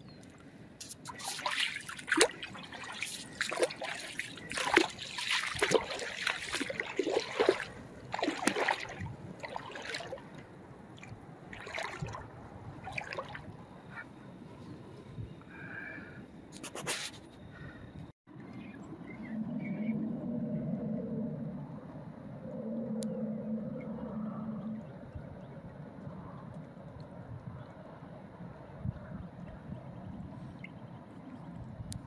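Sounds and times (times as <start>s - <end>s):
water splashing and trickling: 0.0s - 13.7s.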